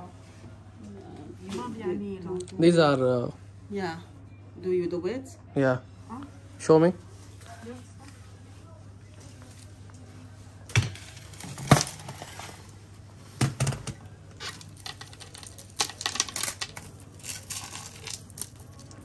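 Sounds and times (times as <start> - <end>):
goods clattering on shop counter: 10.7 - 12.7, 13.3 - 19.0.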